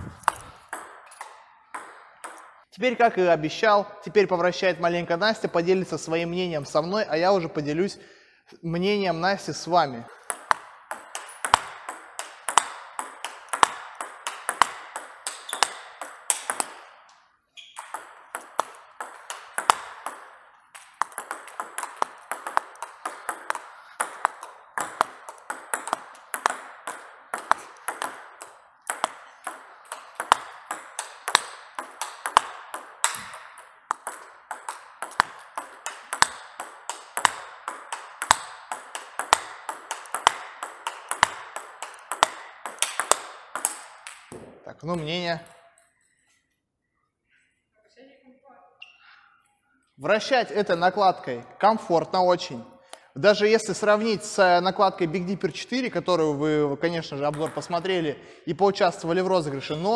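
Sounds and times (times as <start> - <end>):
table tennis ball clicks: 0.2 - 2.6, 10.2 - 45.0, 57.2 - 57.9.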